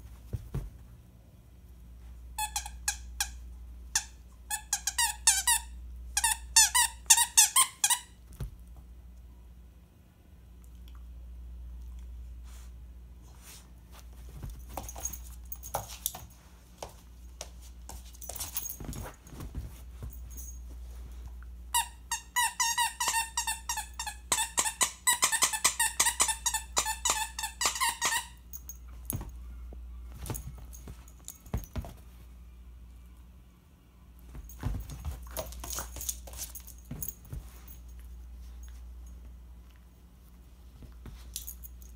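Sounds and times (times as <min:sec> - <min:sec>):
squeaky toy squeaking: 0:21.8 - 0:28.4
dog handling toys rustling: 0:34.3 - 0:39.2.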